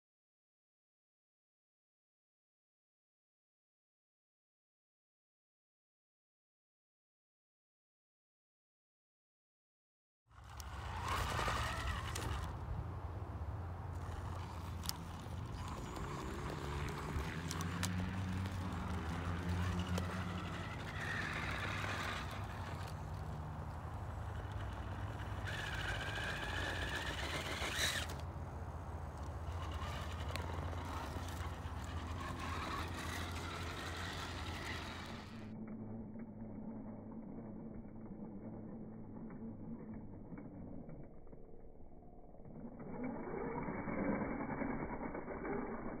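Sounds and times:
small electric motor whining: 10.3 - 41.4, 42.4 - 46.0.

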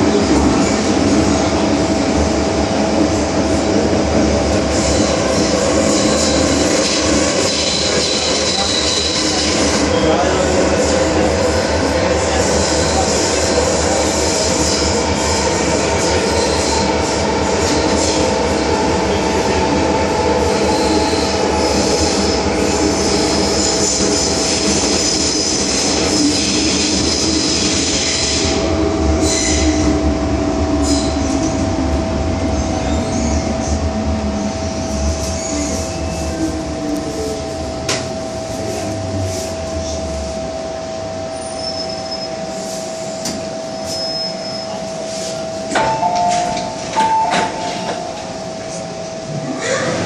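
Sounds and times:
train rumbling in tunnel: 0.0 - 50.0
train whine: 0.0 - 50.0
high squeal: 41.4 - 42.8, 43.7 - 45.4
train doors clunking: 45.3 - 48.9.

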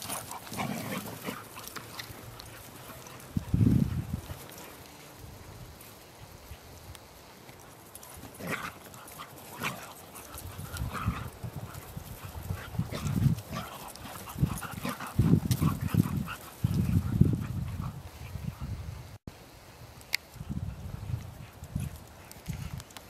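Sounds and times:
dogs playing: 0.0 - 6.7, 7.5 - 18.7.

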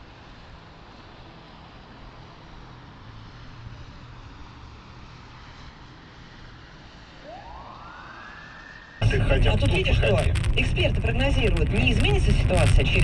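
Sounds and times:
car road and engine noise: 0.0 - 13.0
rising whine: 7.2 - 13.0.

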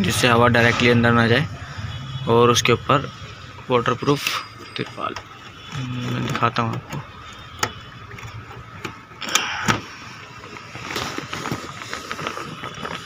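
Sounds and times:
plastic sheet rustling and scraping: 9.8 - 13.0.

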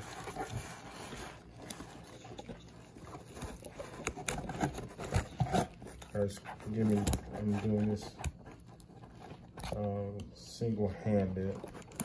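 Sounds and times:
nylon bag rustling: 0.0 - 8.1.

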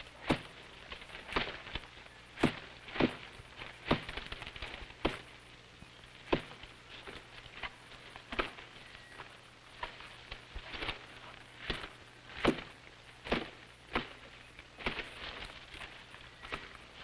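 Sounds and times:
footsteps crunching through dry leaves: 6.7 - 17.0.

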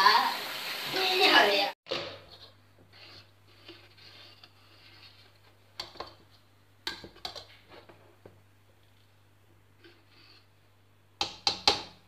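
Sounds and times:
ladle stirring porridge: 2.2 - 9.2.

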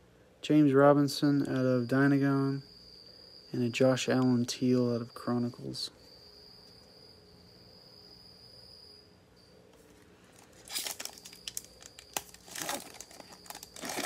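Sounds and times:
cricket chirping: 0.0 - 14.0
foil pack crinkling and tearing: 10.3 - 14.0.

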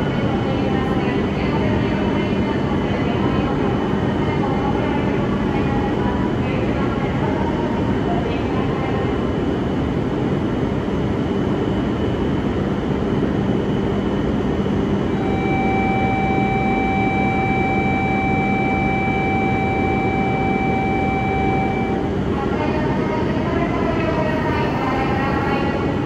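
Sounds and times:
train cooling fans humming: 0.0 - 26.0
electronic platform buzzer: 15.1 - 22.1.

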